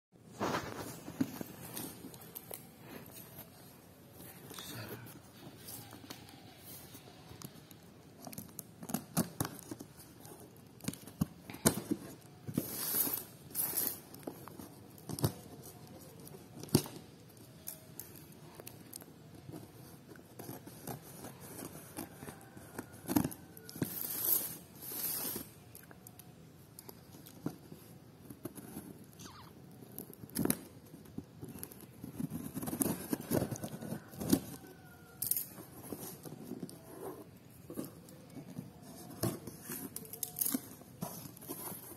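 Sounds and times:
tape tearing: 0:07.4 - 0:19.1, 0:23.3 - 0:26.2, 0:39.0 - 0:41.9.

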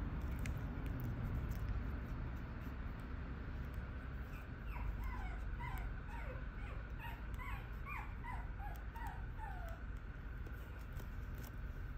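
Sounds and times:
puppy whimpering: 0:04.2 - 0:10.0.

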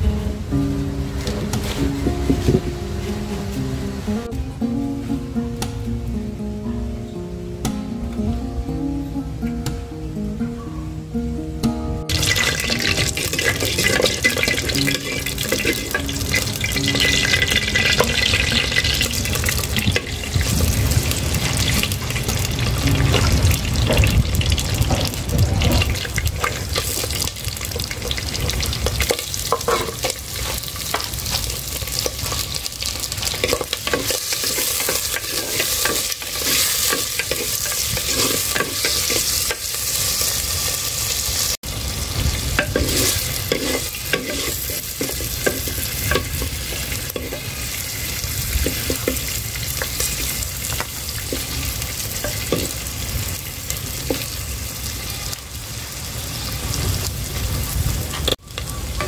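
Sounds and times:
meat sizzling in oil: 0:12.1 - 0:59.0
spatula scraping a pan: 0:27.7 - 0:31.4, 0:33.2 - 0:40.2, 0:42.6 - 0:47.6.

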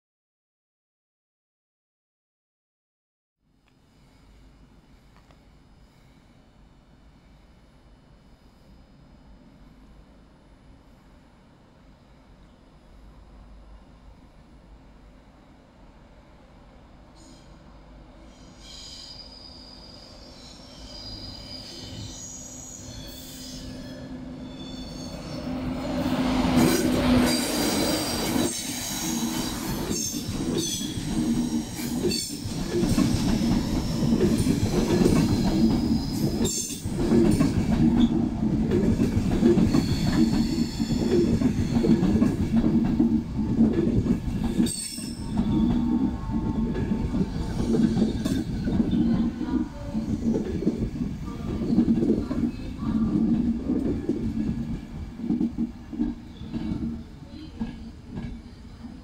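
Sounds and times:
train braking: 0:17.1 - 0:59.0
wheels and brakes squealing: 0:18.2 - 0:37.4, 0:39.6 - 0:42.2, 0:44.5 - 0:50.3.

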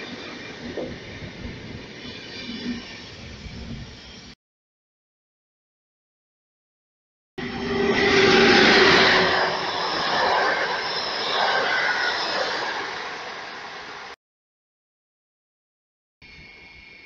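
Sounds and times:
train rumbling past: 0:07.4 - 0:14.2.

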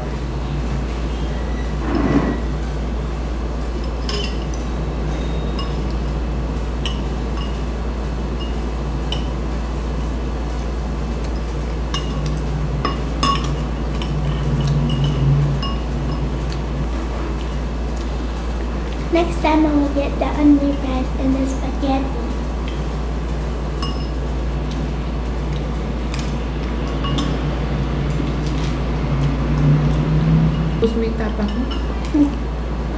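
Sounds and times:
steady low hum: 0:00.0 - 0:32.9
cutlery clinking against bowl: 0:26.1 - 0:27.4.

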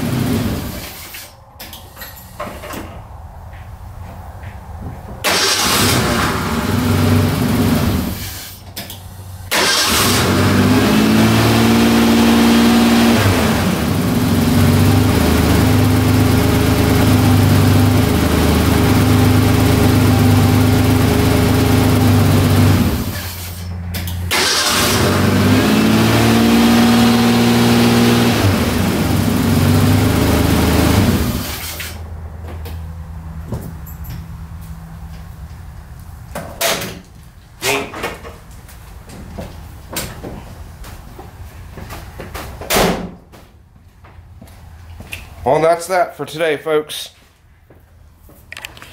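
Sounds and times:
car engine starting and revving: 0:00.0 - 0:01.1, 0:05.2 - 0:08.6, 0:09.4 - 0:32.0.

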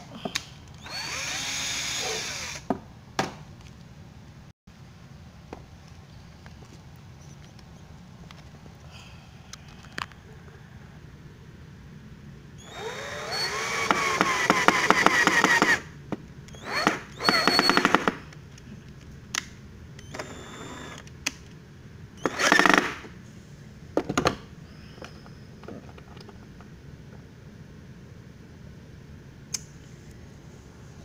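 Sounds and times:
power drill whining: 0:00.8 - 0:02.7, 0:12.6 - 0:15.8, 0:16.5 - 0:18.0, 0:20.0 - 0:21.0.

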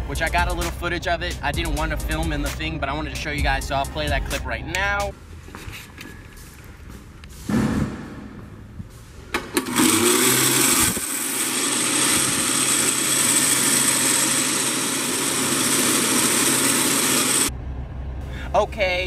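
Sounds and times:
hair dryer blowing air: 0:09.6 - 0:17.5.

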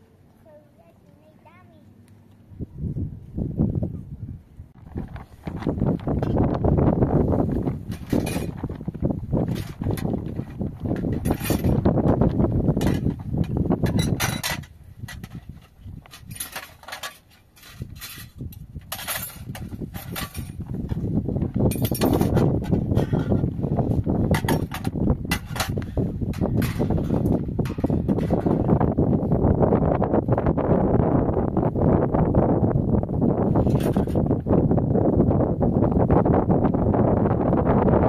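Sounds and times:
wind rumbling on microphone: 0:02.2 - 0:38.0.

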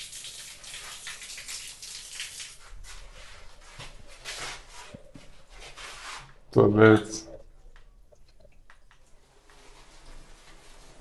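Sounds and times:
water running from a tap: 0:00.0 - 0:02.7.

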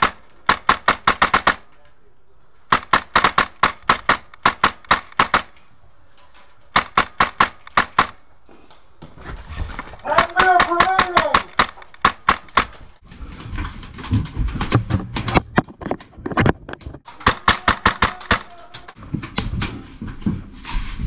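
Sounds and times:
airsoft rifles firing: 0:00.0 - 0:01.7, 0:02.7 - 0:05.6, 0:06.7 - 0:08.2, 0:10.1 - 0:12.8, 0:17.1 - 0:18.7.

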